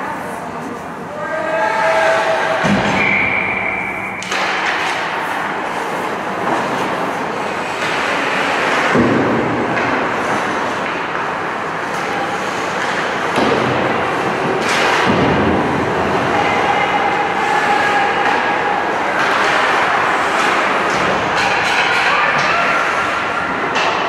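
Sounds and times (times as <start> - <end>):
echoing arena noise: 0.0 - 24.0
skates scraping ice: 1.8 - 24.0
hockey sticks and puck knocking: 4.2 - 16.2, 18.2 - 24.0.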